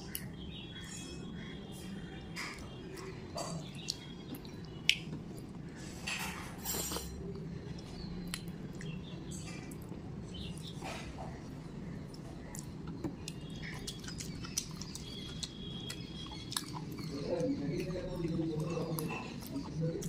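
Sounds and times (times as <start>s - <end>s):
steady low hum: 0.0s - 20.0s
food being chewed: 6.7s - 20.0s.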